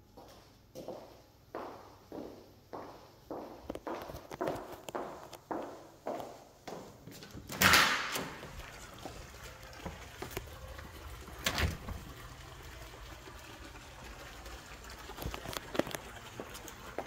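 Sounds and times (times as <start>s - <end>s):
outdoor background hiss: 4.7s - 17.0s
trickle of water: 8.2s - 17.0s.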